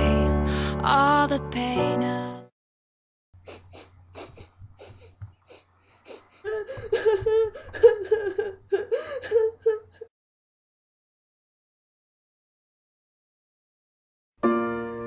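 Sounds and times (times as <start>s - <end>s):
faint breathy sounds: 3.4s - 7.8s
woman sobbing and whimpering: 3.4s - 10.1s.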